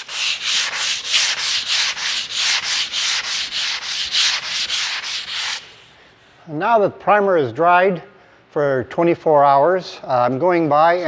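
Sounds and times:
sandpaper rubbing on wood: 0:00.0 - 0:06.0.

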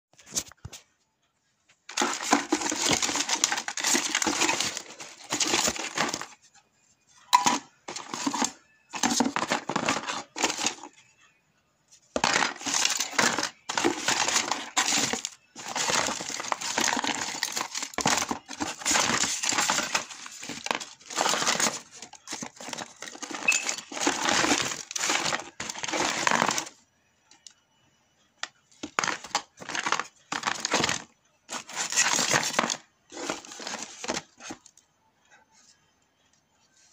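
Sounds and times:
phone parts clattering in a box: 0:01.9 - 0:06.4, 0:07.3 - 0:11.0, 0:12.2 - 0:26.8, 0:28.8 - 0:34.8.

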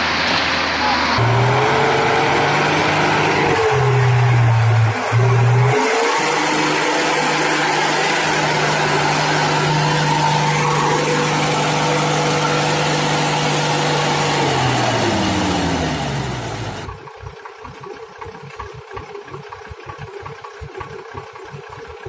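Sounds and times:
truck engine revving: 0:00.0 - 0:17.0.

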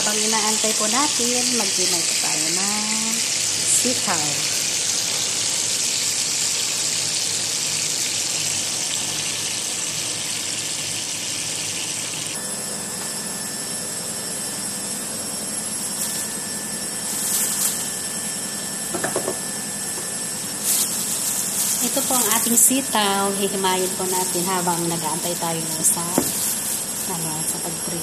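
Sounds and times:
fish sizzling in hot oil: 0:00.0 - 0:12.4, 0:15.9 - 0:18.7, 0:20.2 - 0:28.0
knocks and clatters on counter: 0:18.9 - 0:19.4.

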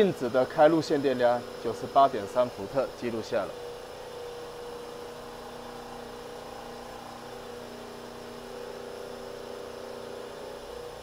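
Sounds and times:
generator whirring and humming: 0:00.0 - 0:11.0.

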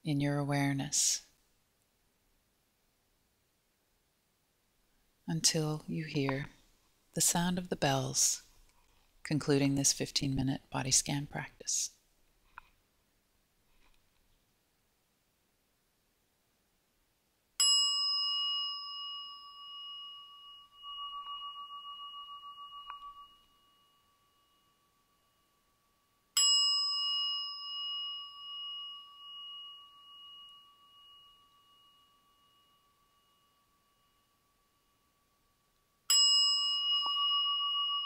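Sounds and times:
meditation bell ringing: 0:17.6 - 0:38.0.

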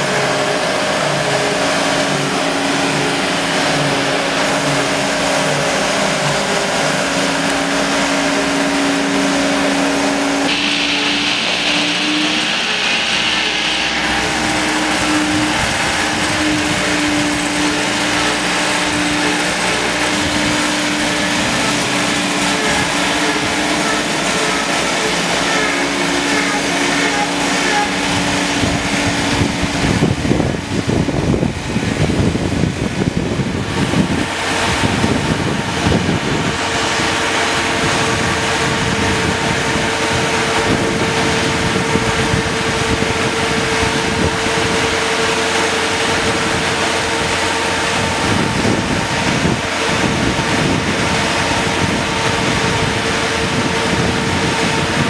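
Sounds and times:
boat hoist engine whining: 0:00.0 - 0:55.0.

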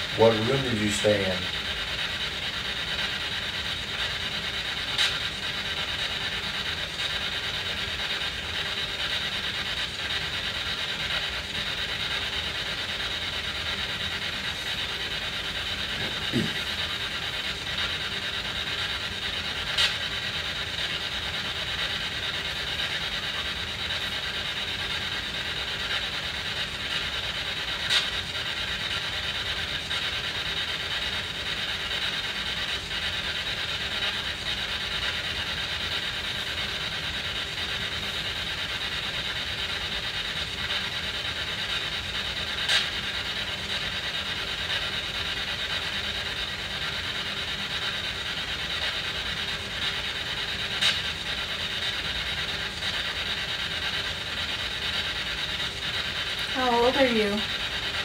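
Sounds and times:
radio static hiss: 0:00.0 - 0:01.8, 0:14.3 - 0:17.6.

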